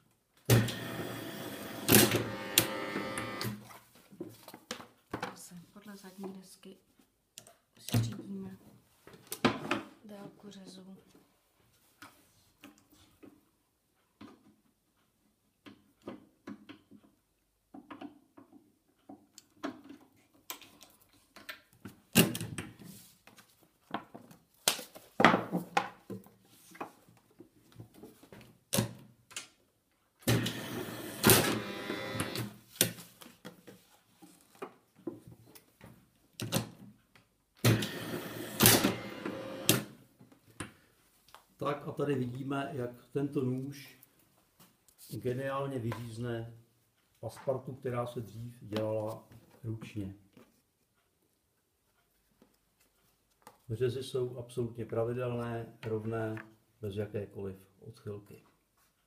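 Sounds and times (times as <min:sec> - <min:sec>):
cutting machine running: 0:00.6 - 0:03.6, 0:30.4 - 0:32.5, 0:37.8 - 0:39.8.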